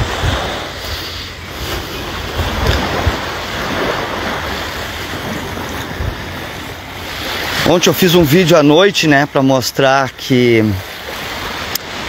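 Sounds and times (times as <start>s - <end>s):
wind rumbling on microphone: 0.0s - 8.3s
rushing outdoor noise: 0.0s - 12.0s.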